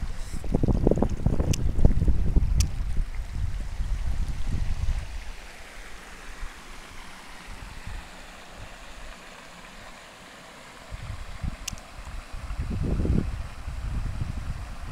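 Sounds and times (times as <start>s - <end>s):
wind buffeting microphone: 0.0s - 5.3s, 10.9s - 14.9s
stream rushing over stones: 0.0s - 14.9s.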